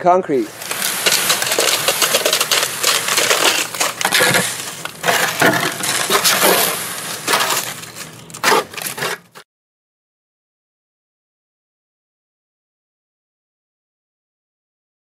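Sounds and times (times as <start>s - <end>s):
concrete mixer drum churning: 0.4s - 9.4s
gravel rattling: 0.4s - 9.4s.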